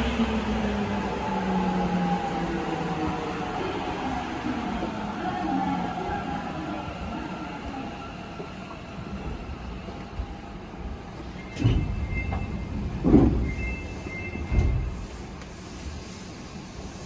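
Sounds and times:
train running rumble: 11.5 - 17.0.

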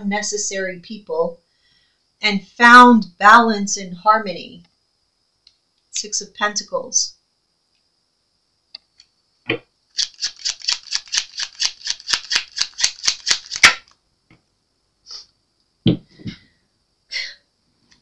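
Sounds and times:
cards being shuffled: 10.0 - 14.0.

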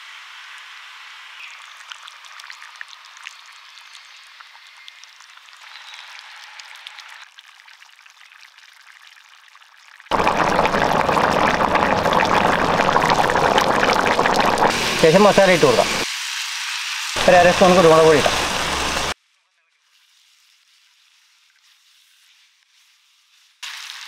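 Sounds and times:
gravy simmering in a pan: 0.0 - 16.5, 17.2 - 24.0
loud steady rushing noise: 10.1 - 16.0, 17.2 - 19.2.

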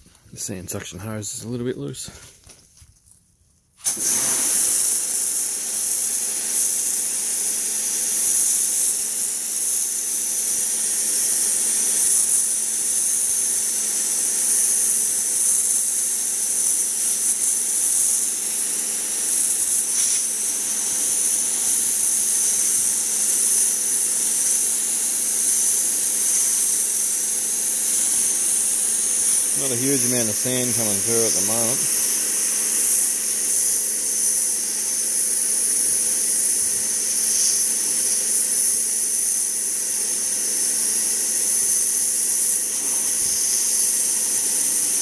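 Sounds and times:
pump humming: 3.8 - 7.8
pressure washer hissing: 3.8 - 45.0.

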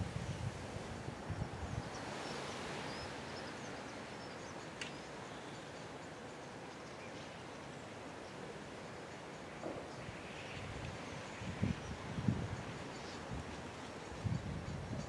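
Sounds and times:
wind buffeting microphone: 0.0 - 2.0, 10.7 - 15.0
steady rushing hiss: 0.0 - 15.0.

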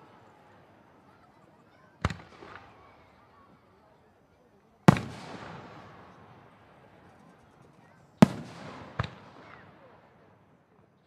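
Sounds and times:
rolling rumble of fireworks: 0.0 - 10.5
fireworks bangs: 4.9 - 7.4, 8.2 - 10.0.

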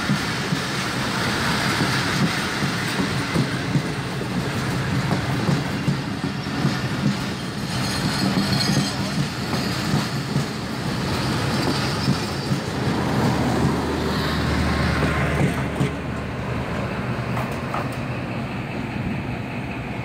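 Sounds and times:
wheels clattering on rails: 0.0 - 16.4, 17.2 - 18.2
low locomotive engine hum: 0.0 - 20.0
train coaches rumbling: 0.0 - 20.0.

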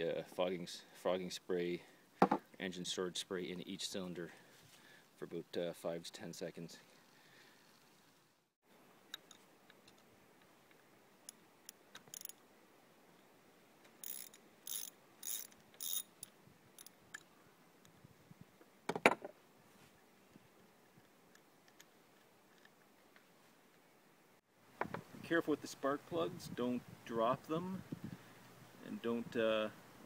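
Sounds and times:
hand ratchet clicking: 14.0 - 17.2.

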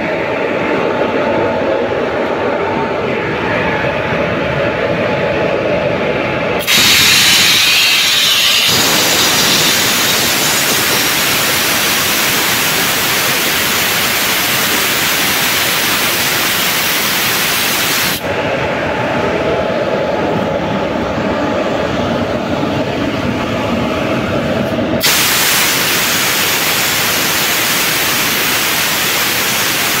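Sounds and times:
loud steady air hiss: 6.6 - 18.3, 25.0 - 30.0.

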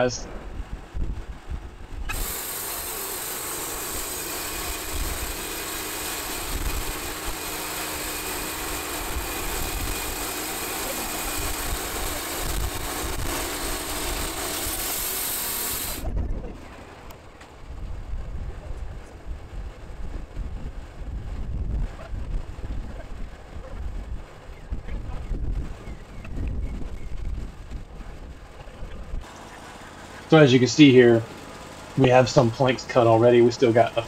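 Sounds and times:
wind rumble on microphone: 0.0 - 2.1, 15.8 - 16.9, 17.6 - 29.3
sawmill engine running under load: 0.0 - 34.0
saw blade cutting wood: 2.1 - 16.1.

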